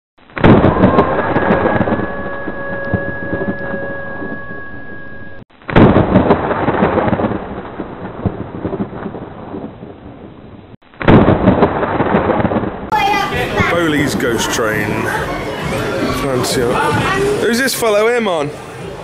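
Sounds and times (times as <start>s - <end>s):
thunder claps rumbling: 0.3s - 10.4s.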